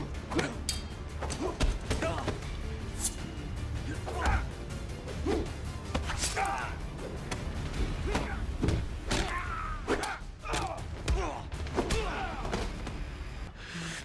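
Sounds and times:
punch and block impacts: 7.2 - 12.8.

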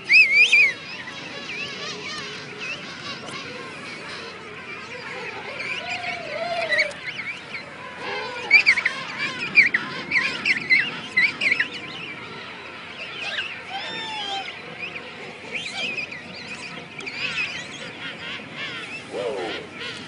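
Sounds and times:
penguins whistling calls: 0.0 - 0.8, 5.3 - 7.4, 13.2 - 14.6
penguins warbling calls: 5.0 - 11.7, 13.2 - 14.6, 17.1 - 20.0.

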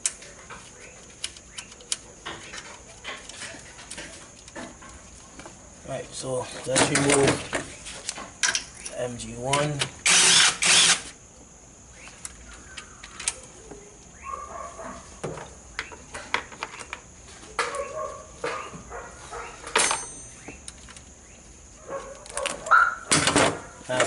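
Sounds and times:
cordless power tool spinning bolt: 10.0 - 11.1.

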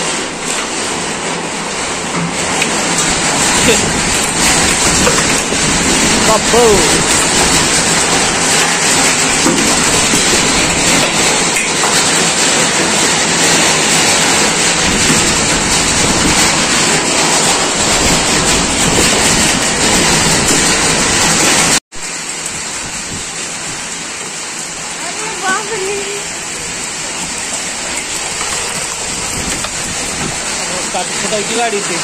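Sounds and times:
hail and heavy rain clattering: 0.0 - 32.0.

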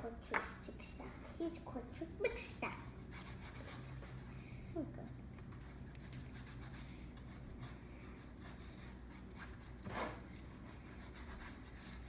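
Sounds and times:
paintbrush scrubbing on canvas: 2.8 - 4.3.

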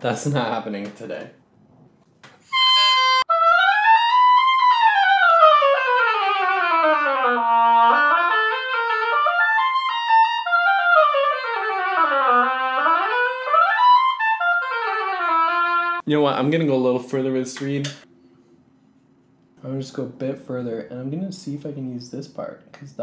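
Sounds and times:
oboe playing fast scales: 2.4 - 16.0.

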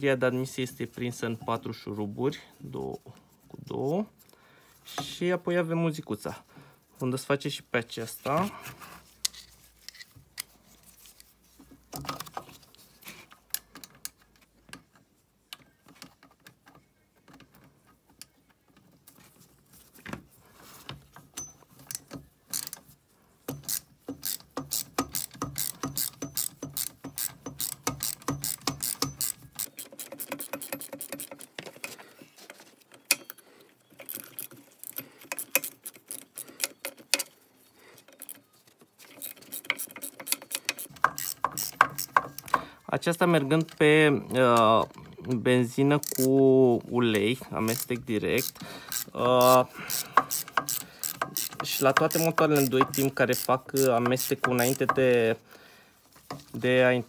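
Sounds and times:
ratchet wrench clicking: 21.4 - 22.8, 23.5 - 31.5, 34.0 - 37.3, 39.1 - 42.6, 46.0 - 46.3, 47.7 - 55.1.

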